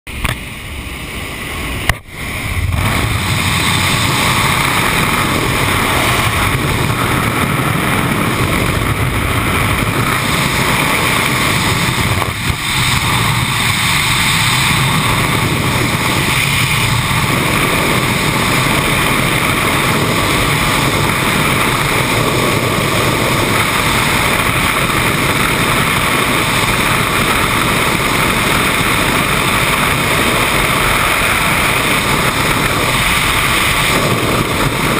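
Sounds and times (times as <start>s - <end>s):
wind rushing on microphone: 0.1s - 34.9s.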